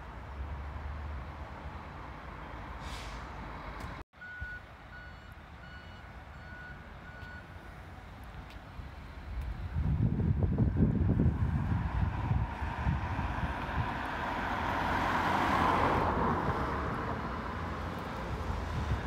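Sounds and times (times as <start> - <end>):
traffic rumble: 0.0 - 19.0
wind: 0.0 - 19.0
vehicle reversing alarm beeping: 4.2 - 7.6.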